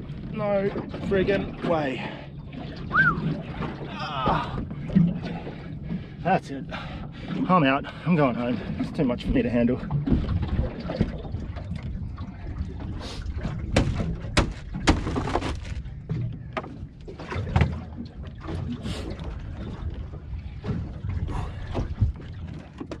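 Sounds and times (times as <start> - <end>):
water slapping boat hull: 0.0 - 23.0
wind rumbling over microphone: 2.4 - 7.2, 8.6 - 23.0
sharp knocks: 13.7 - 15.6.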